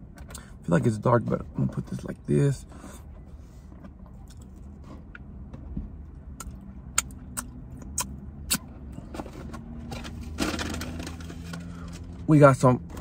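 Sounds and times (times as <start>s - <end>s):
low hum in car cabin: 0.0s - 13.0s
lip smacks: 6.4s - 8.7s.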